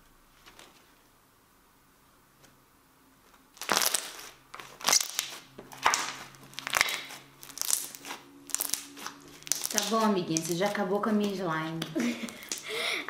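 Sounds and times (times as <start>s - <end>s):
slime crackling and popping: 3.5s - 12.7s.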